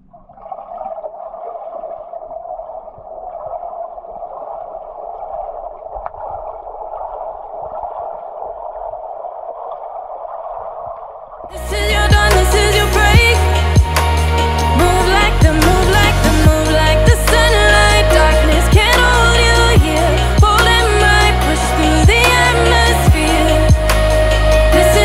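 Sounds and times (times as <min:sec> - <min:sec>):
muffled underwater water noise: 0:00.0 - 0:11.6.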